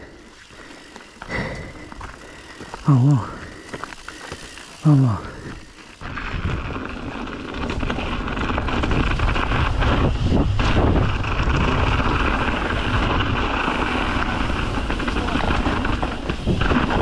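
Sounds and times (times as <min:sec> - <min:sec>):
tyres rumbling on dirt: 0:01.2 - 0:17.0
wind rushing over microphone: 0:06.0 - 0:17.0.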